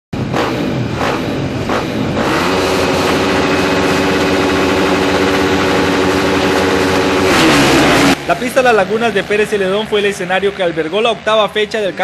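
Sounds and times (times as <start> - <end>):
motorcycle engines revving: 0.2 - 12.0.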